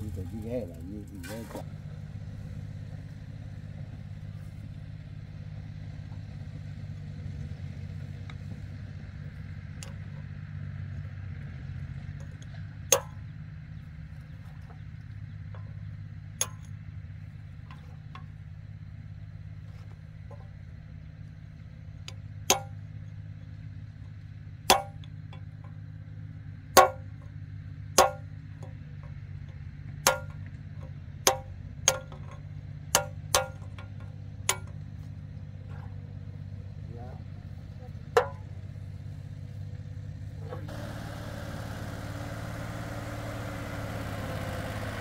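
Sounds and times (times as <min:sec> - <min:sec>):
low engine hum: 0:00.0 - 0:45.0
hammer striking metal punch: 0:12.2 - 0:13.2, 0:16.4 - 0:16.7, 0:22.5 - 0:22.8, 0:24.7 - 0:25.1, 0:26.8 - 0:27.3, 0:28.0 - 0:28.3, 0:30.0 - 0:30.5, 0:31.3 - 0:34.8, 0:38.2 - 0:38.5.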